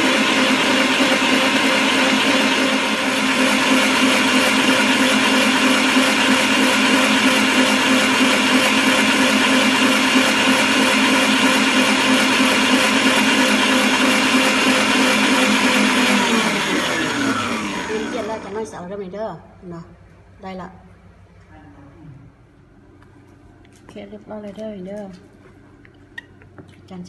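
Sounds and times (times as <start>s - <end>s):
stand mixer whisking batter: 0.0s - 18.8s
mixer motor winding down: 0.0s - 18.9s.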